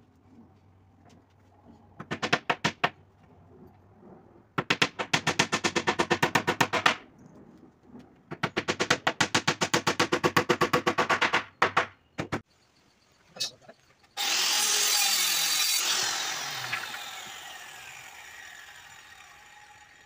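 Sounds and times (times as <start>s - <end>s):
hammer driving nails into wood: 4.6s - 7.0s, 8.4s - 12.4s.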